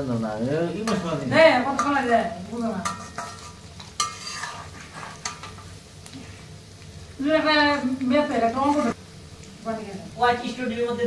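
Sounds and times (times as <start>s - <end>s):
fritters sizzling in hot oil: 0.0s - 11.0s
metal spoon scraping pan: 0.8s - 5.7s, 8.6s - 9.0s.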